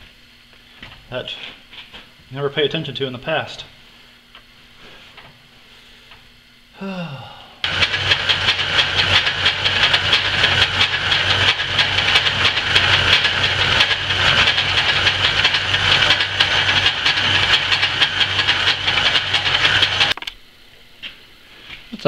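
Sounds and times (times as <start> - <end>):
metal lathe cutting: 7.7 - 20.2.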